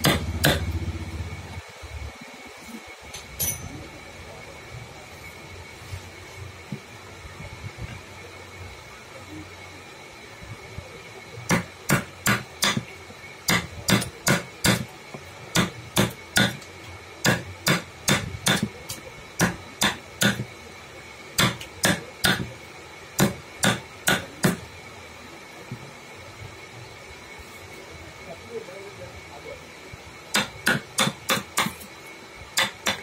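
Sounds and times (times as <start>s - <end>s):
mallet striking chisel into wood: 0.0s - 0.7s, 11.5s - 12.8s, 13.5s - 14.8s, 15.6s - 16.6s, 17.2s - 18.7s, 19.4s - 20.4s, 21.4s - 22.5s, 23.2s - 24.6s, 30.4s - 31.8s, 32.6s - 33.0s.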